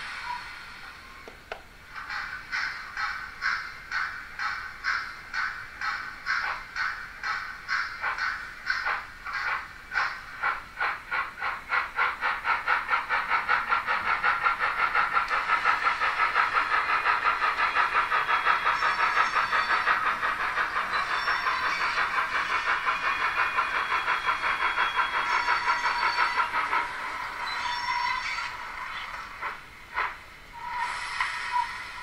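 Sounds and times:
steady steam hiss: 0.0 - 32.0
model steam locomotive chuffing: 1.9 - 32.0
thin high curve squeals: 27.1 - 29.0.

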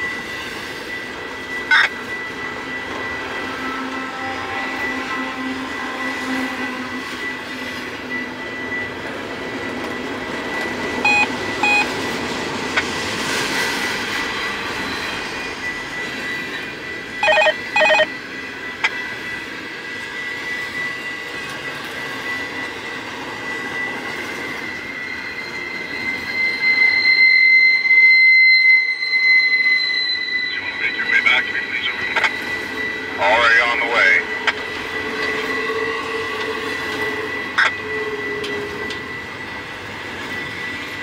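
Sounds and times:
high wheel squeal: 0.0 - 12.0, 12.8 - 41.0
freight train rumble: 0.0 - 41.0
short beeps: 11.0 - 11.9, 17.2 - 18.1, 28.7 - 32.5.

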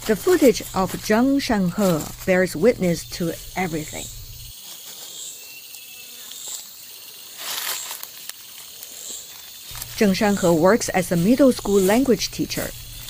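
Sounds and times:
rustling noise: 0.0 - 5.1
insects trilling: 0.0 - 13.0.

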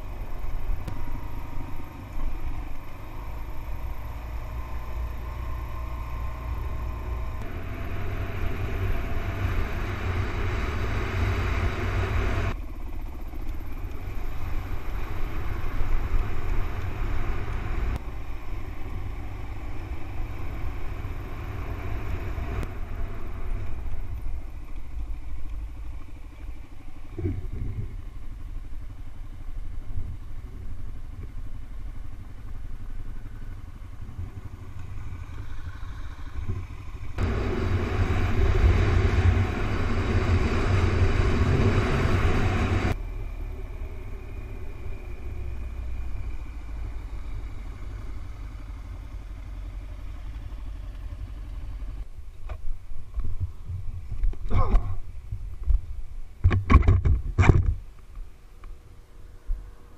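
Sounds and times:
motorcycle engine: 0.0 - 52.2
wind rushing on microphone: 36.3 - 43.0.

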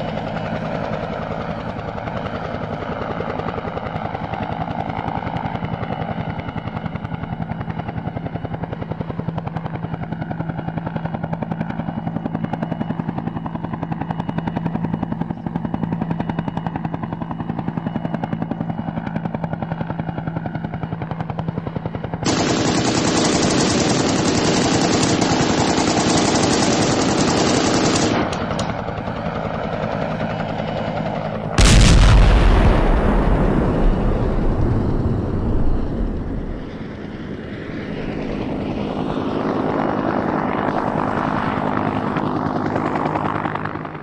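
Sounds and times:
helicopter rotor and engine: 0.0 - 44.0
rapid machine-gun fire: 22.2 - 28.3
loud blast: 31.6 - 36.9.

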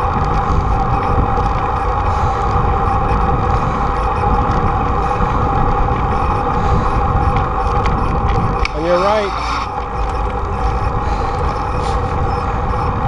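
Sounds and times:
steady droning hum: 0.0 - 13.0
wind rushing over microphone: 0.0 - 13.0.

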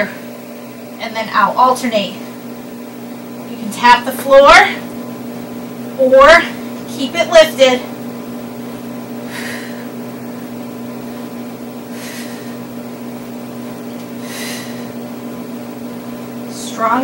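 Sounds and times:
steady low hum: 0.0 - 17.0
woman breathing hissily: 9.2 - 10.0, 11.8 - 12.7, 14.2 - 15.0.

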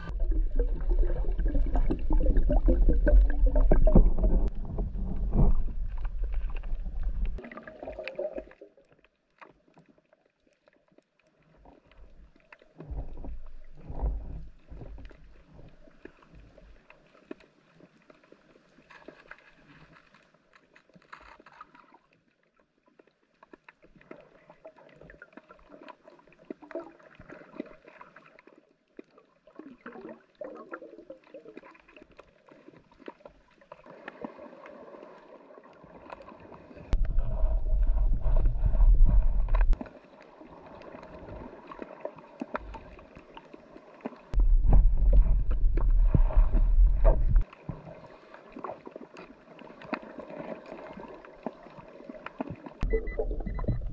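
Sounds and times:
water crackling and gurgling: 0.0 - 53.9
loud low rumble: 37.0 - 39.8, 44.4 - 47.4.

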